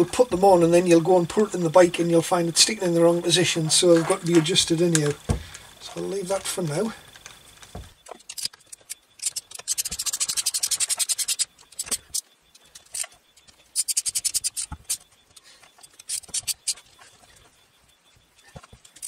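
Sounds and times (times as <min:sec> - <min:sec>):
knocks and handling noise: 0:03.6 - 0:06.5, 0:07.1 - 0:10.2, 0:10.8 - 0:17.6, 0:18.2 - 0:19.0
rapid metallic ratchet clicking: 0:08.2 - 0:12.2, 0:13.7 - 0:15.0.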